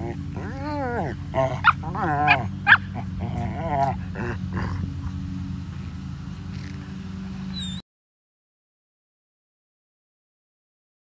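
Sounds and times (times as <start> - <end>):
dog howling: 0.0 - 4.8
steady low hum: 0.0 - 7.8.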